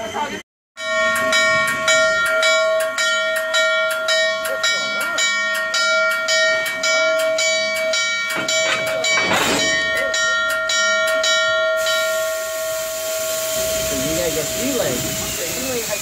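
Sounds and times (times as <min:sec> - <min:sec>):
steam locomotive bell ringing: 0:00.0 - 0:16.0
steam hissing: 0:11.8 - 0:16.0.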